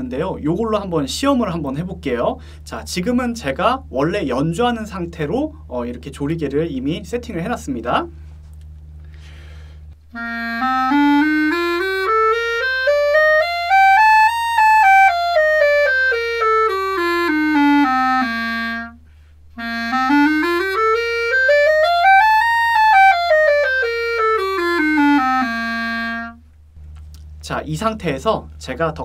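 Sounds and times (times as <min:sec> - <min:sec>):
player breathing: 0:09.0 - 0:10.0, 0:19.0 - 0:19.5
clarinet playing scales: 0:10.0 - 0:26.5.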